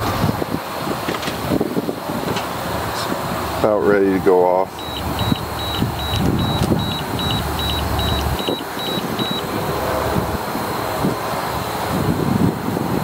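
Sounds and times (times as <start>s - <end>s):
steady low rumble: 0.0s - 13.0s
short high alarm beeps: 4.8s - 9.5s.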